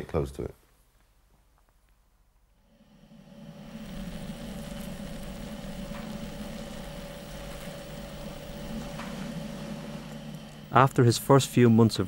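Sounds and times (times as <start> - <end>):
low hum: 2.5 - 12.0
thin steady tone: 2.6 - 12.0.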